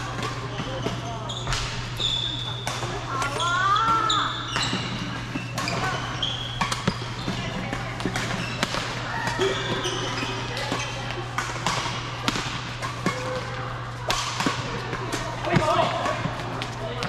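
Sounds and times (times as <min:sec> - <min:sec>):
shoes squeaking on floor: 0:00.0 - 0:11.3
racket hitting shuttlecock: 0:04.6 - 0:17.0.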